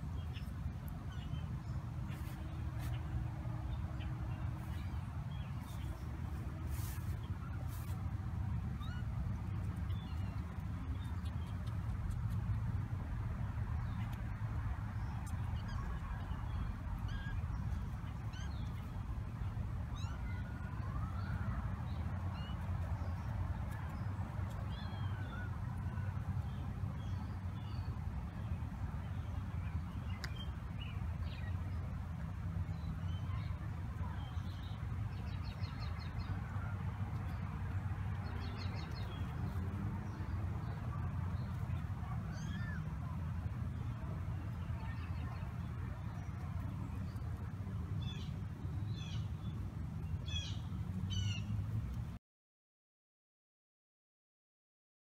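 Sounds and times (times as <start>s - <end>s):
birds chirping: 13.8s - 31.8s.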